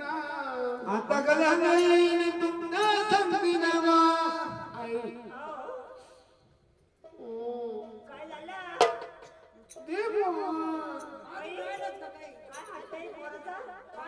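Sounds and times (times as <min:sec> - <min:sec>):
person singing folk song: 0:00.0 - 0:06.2.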